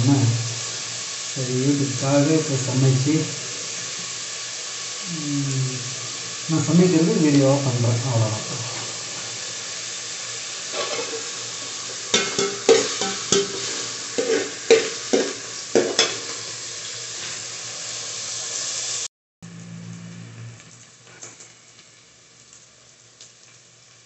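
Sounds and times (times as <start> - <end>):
onions sizzling in hot oil: 0.0 - 24.0
spoon scraping metal pot: 10.7 - 11.3, 12.1 - 16.2.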